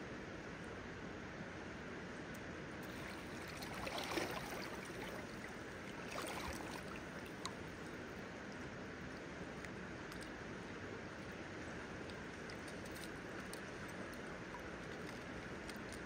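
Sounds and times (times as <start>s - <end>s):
fish splashing: 2.8s - 8.0s
shallow river rushing: 2.8s - 10.0s.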